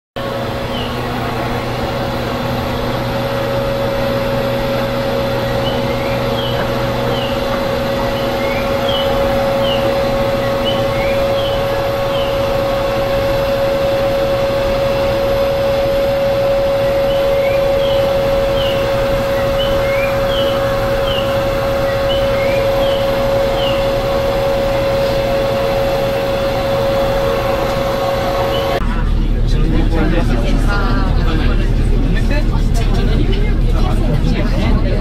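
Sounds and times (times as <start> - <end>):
electric blower humming: 0.2 - 28.8
lower hum: 0.2 - 35.0
high falling chirps: 3.0 - 28.8.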